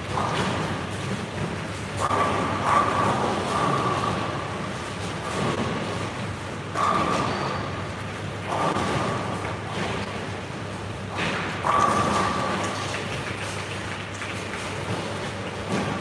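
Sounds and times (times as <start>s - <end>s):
bowling balls rolling: 0.0s - 16.0s.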